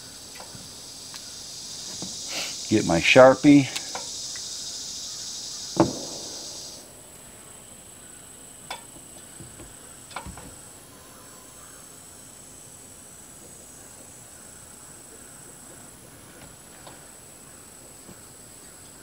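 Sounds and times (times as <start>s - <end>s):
insect buzzing: 0.0s - 19.0s
sharp click: 5.8s - 6.9s.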